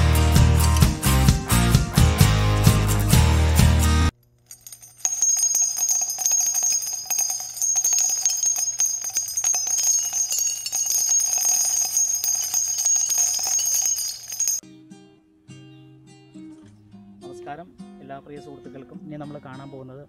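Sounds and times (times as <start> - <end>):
jingle bells shaking: 0.0 - 1.2, 4.5 - 14.6
high bright ringing shimmer: 4.5 - 14.6.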